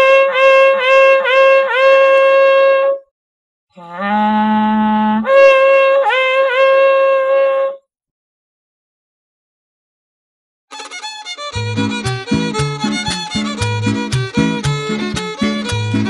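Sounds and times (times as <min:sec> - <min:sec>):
horn-like wind instrument blasts: 0:00.0 - 0:03.0, 0:03.8 - 0:07.8.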